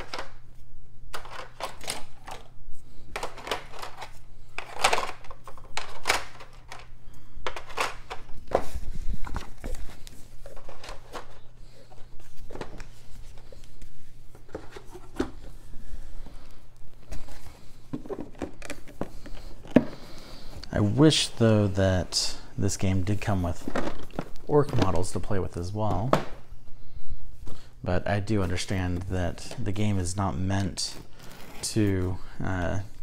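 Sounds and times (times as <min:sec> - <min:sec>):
steady low hum: 0:00.0 - 0:33.0
plastic pieces clicking and rattling: 0:01.1 - 0:02.5, 0:03.1 - 0:08.3.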